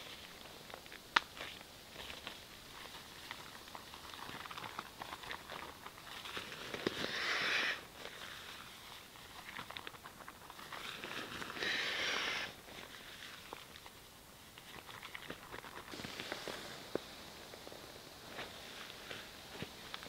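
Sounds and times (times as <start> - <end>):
nylon crinkling and rustling: 0.0 - 20.0
air hissing rush: 6.9 - 8.0, 11.5 - 12.6, 15.9 - 20.0.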